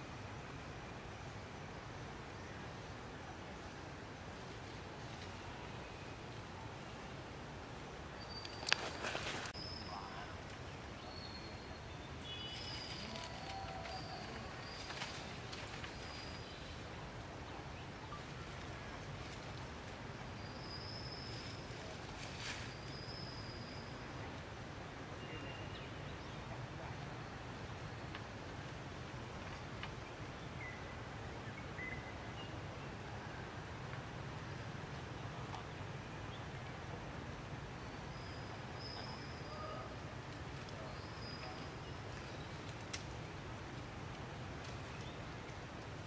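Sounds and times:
rustle: 0:00.0 - 0:46.0
thin high whistling calls: 0:08.2 - 0:10.4, 0:11.0 - 0:16.8, 0:20.3 - 0:24.2.

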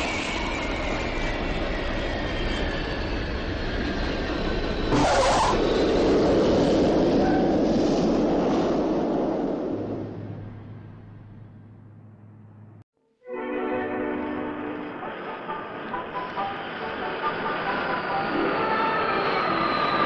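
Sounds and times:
jet engines whining and rushing: 0:00.0 - 0:12.8, 0:14.2 - 0:20.0
tyre screech: 0:04.9 - 0:05.8.

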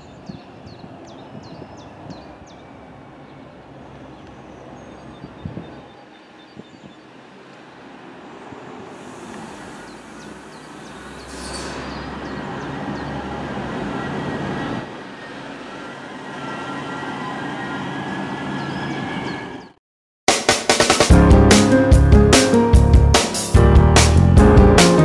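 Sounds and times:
diesel train approaching: 0:00.0 - 0:19.8
brief high hiss: 0:08.9 - 0:12.1
faint high squealing tones: 0:09.5 - 0:12.2, 0:13.8 - 0:19.6.

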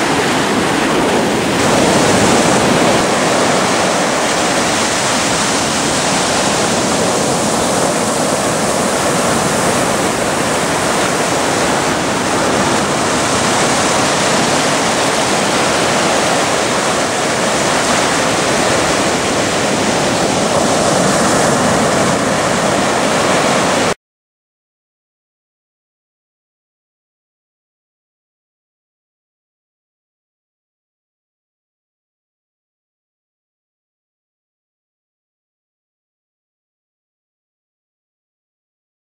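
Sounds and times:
ocean surf breaking on beach: 0:00.0 - 0:24.0.

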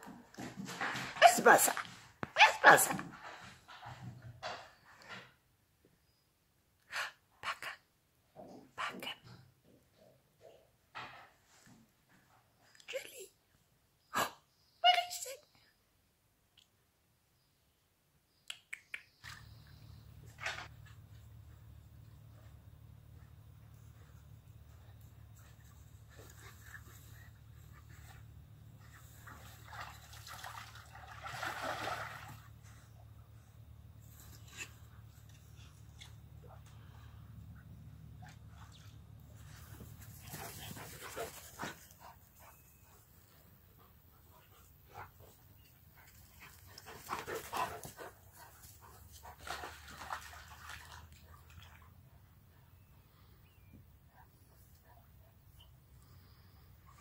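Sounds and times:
dog splashing in water: 0:29.1 - 0:32.6, 0:49.4 - 0:51.9
dog panting: 0:39.7 - 0:49.7.

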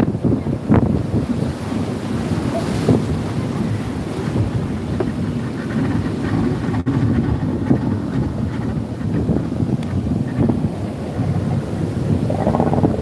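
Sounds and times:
surf and breaking waves: 0:00.0 - 0:13.0
wind rumbling on microphone: 0:00.0 - 0:13.0.

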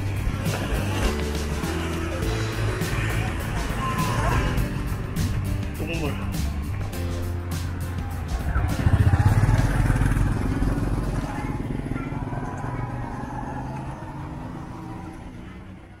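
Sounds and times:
street traffic noise: 0:00.0 - 0:16.0
motorbike engine passing by: 0:08.0 - 0:16.0.

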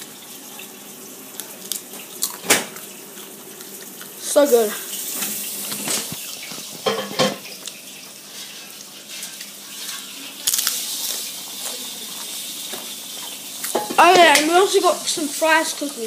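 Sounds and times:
food cooking hiss: 0:02.8 - 0:16.0
pots and dishes clinking: 0:05.2 - 0:07.6, 0:11.1 - 0:14.6.

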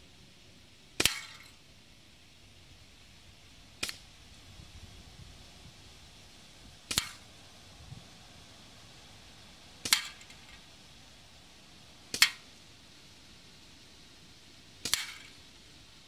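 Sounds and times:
projectile striking metal can: 0:14.9 - 0:15.3.

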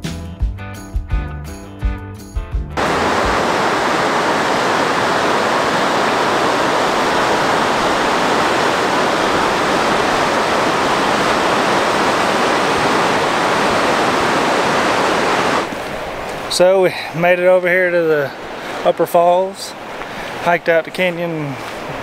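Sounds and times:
music: 0:00.0 - 0:02.8
waterfall rushing: 0:02.8 - 0:22.0.

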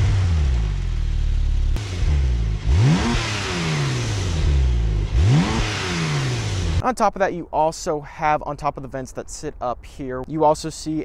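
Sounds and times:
car exhaust revving: 0:00.0 - 0:06.8.

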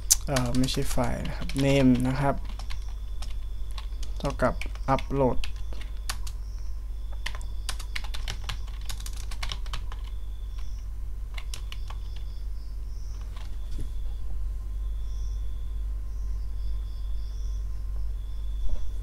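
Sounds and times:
computer keyboard typing: 0:00.0 - 0:06.4, 0:07.1 - 0:12.4, 0:13.1 - 0:13.7
steady low hum: 0:00.0 - 0:19.0.

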